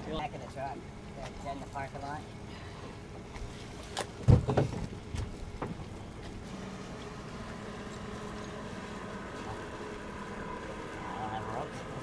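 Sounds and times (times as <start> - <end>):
steady low hum: 0.0 - 12.0
thumps and knocks of gear: 4.0 - 5.9.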